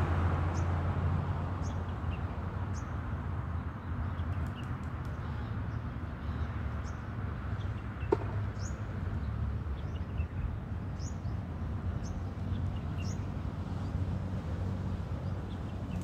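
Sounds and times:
sharp tap: 0:08.1 - 0:08.4.

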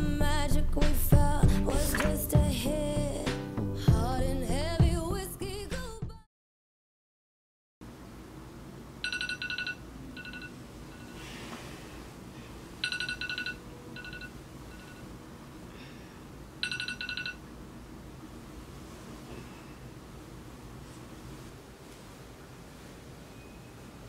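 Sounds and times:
low room hum: 0:07.8 - 0:24.0
phone ringtone trill and beeps: 0:09.0 - 0:11.1, 0:12.8 - 0:15.0, 0:16.6 - 0:17.4.

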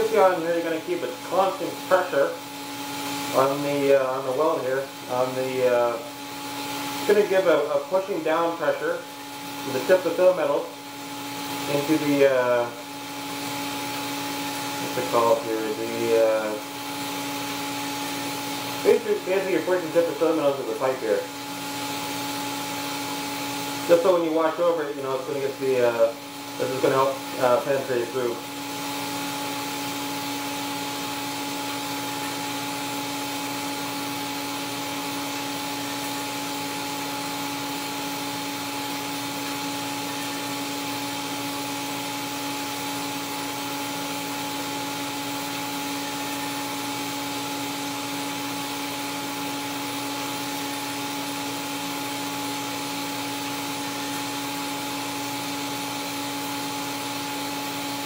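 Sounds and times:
welding arc hiss: 0:00.0 - 0:58.0
welding machine hum: 0:00.0 - 0:58.0.

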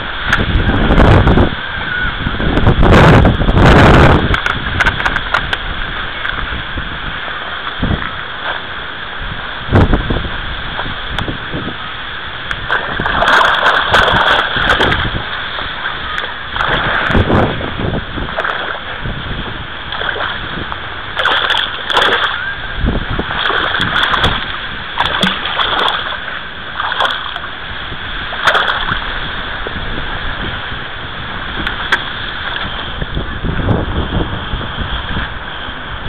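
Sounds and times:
wind buffeting microphone: 0:00.0 - 0:36.0
water splashing at bank: 0:12.4 - 0:33.9.

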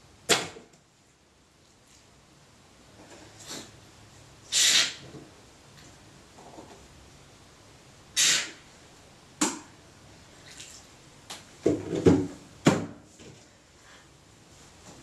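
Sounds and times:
short hiss: 0:04.5 - 0:05.1, 0:08.2 - 0:08.6.

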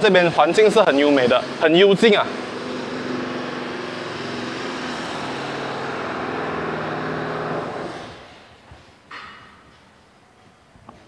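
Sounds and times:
vehicle engine running: 0:02.2 - 0:08.1.

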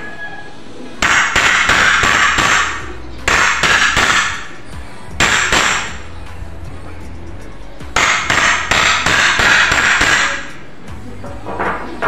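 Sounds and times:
hammer striking nails into wood: 0:01.0 - 0:04.5, 0:05.2 - 0:06.0, 0:08.0 - 0:10.5.

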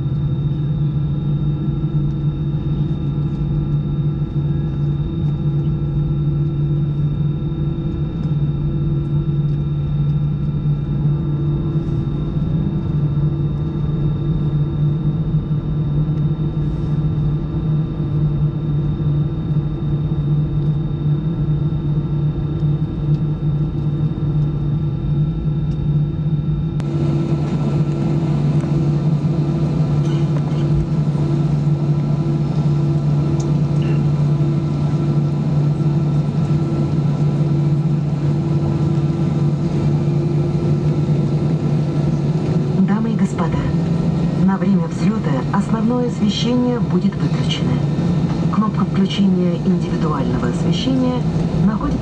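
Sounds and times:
aircraft cabin drone: 0:00.0 - 0:52.0.

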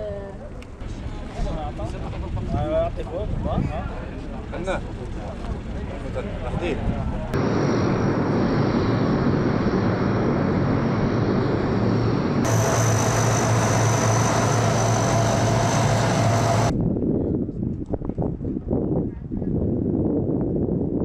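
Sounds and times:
turboprop engines droning and whining: 0:03.8 - 0:16.8.

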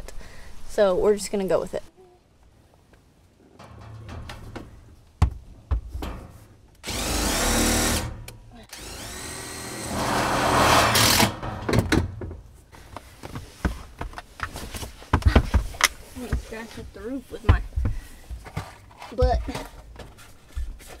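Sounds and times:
sharp knocks: 0:03.6 - 0:06.4
cordless drill driving screws: 0:06.8 - 0:11.4.

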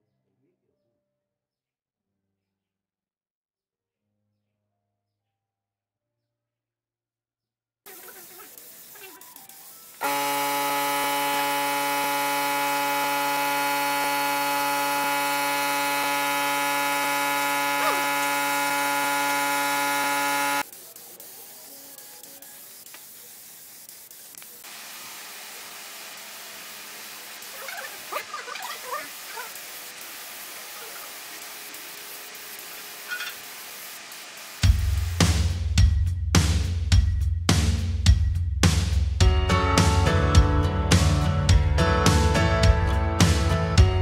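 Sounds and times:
air compressor buzzing hum: 0:07.9 - 0:35.2
spray gun hissing: 0:07.9 - 0:35.3.

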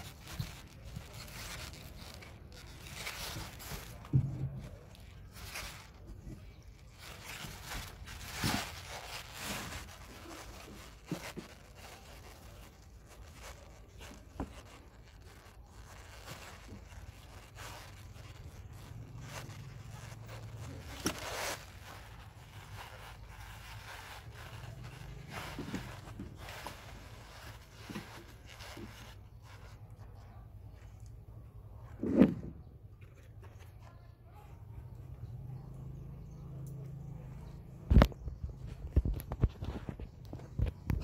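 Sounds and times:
bag scraping on wooden bench: 0:00.0 - 0:29.9, 0:31.9 - 0:33.3
plastic bag rustling: 0:00.0 - 0:34.0.

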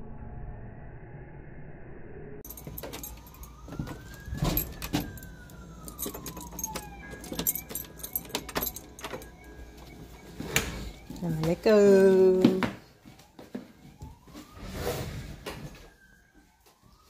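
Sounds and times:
footsteps on wooden floor: 0:12.3 - 0:14.6.

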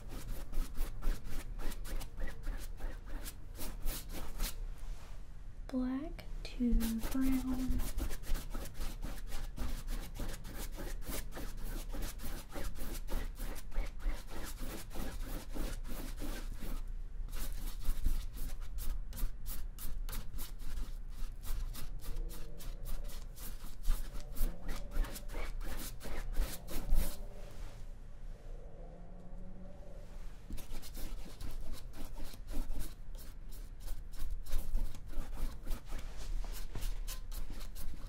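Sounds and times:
paintbrush scratching on canvas: 0:00.0 - 0:04.6, 0:06.6 - 0:27.3, 0:30.5 - 0:38.0.

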